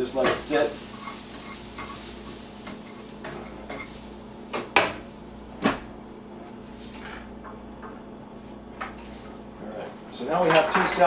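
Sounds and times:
faint sizzle from a pan: 0:00.0 - 0:07.3
utensils and dishes clinking: 0:00.1 - 0:05.0, 0:10.3 - 0:11.0.

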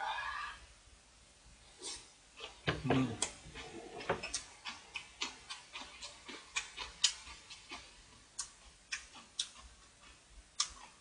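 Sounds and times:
wet chewing and mouth clicks: 0:02.4 - 0:11.0.

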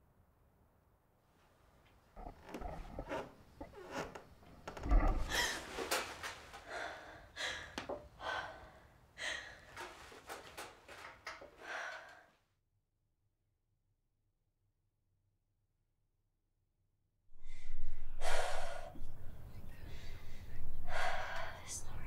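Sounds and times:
woman breathing hard: 0:05.2 - 0:10.4, 0:11.5 - 0:12.4, 0:17.4 - 0:19.2, 0:19.9 - 0:21.8.

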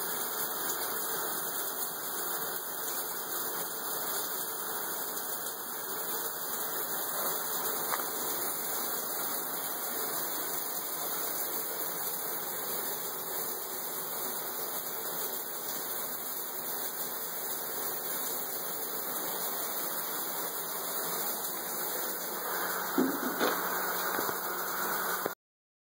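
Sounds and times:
rushing hiss-like noise: 0:05.1 - 0:12.2, 0:18.4 - 0:25.4
short knocks: 0:23.0 - 0:23.6.

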